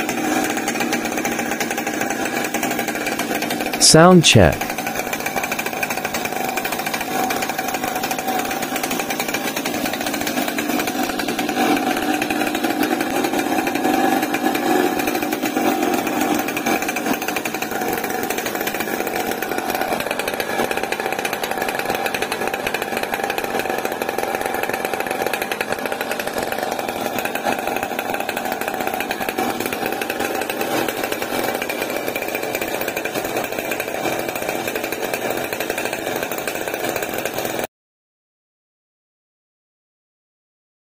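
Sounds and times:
two-stroke engine running: 0:00.0 - 0:03.8, 0:04.7 - 0:37.6.

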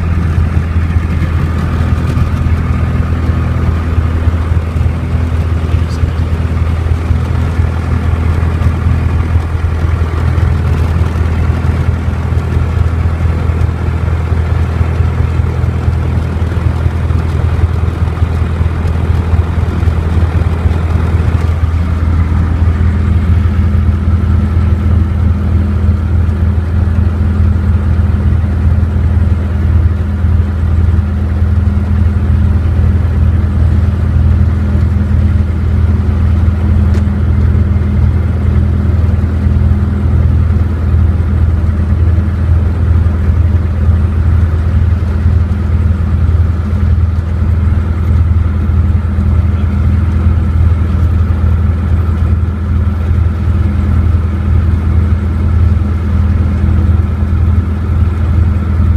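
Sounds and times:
aircraft engine droning: 0:00.0 - 0:58.9.

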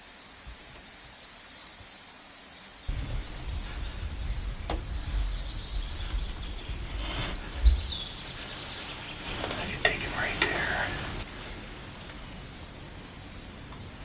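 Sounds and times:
bird chirping: 0:02.9 - 0:11.2, 0:13.4 - 0:14.0
low rumbling of movement: 0:02.9 - 0:13.8.

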